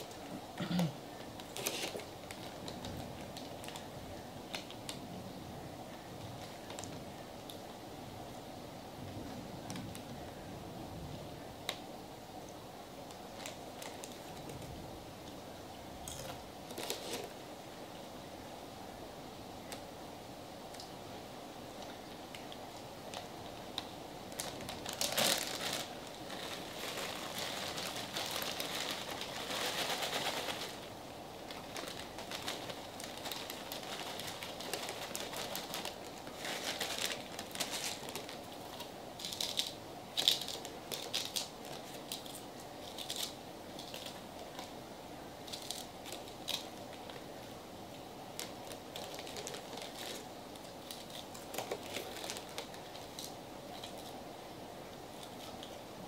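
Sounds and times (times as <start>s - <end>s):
plastic packaging crinkling: 1.2s - 3.9s, 6.2s - 7.6s, 13.1s - 14.7s, 16.0s - 17.4s, 21.8s - 44.8s, 45.4s - 54.2s.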